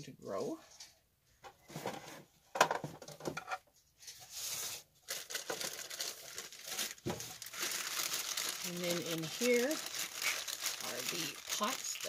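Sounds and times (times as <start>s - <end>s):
parts knocking on plastic box: 1.8s - 3.5s
plastic packaging rustling: 4.0s - 12.0s.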